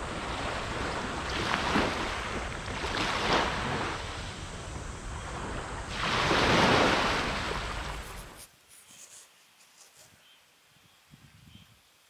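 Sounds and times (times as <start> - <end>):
sea waves washing in: 0.0 - 8.4
wind buffeting microphone: 0.0 - 8.4.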